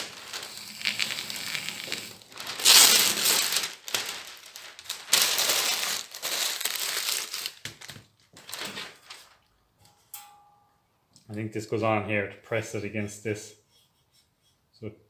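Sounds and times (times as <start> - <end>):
paper crackling and rustling: 0.0 - 9.5.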